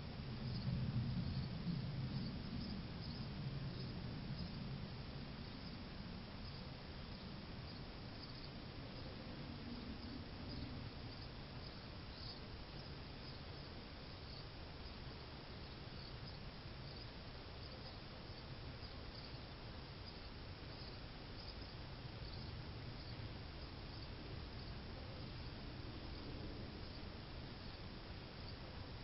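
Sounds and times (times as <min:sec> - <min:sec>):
steady low hiss: 0:00.0 - 0:29.0.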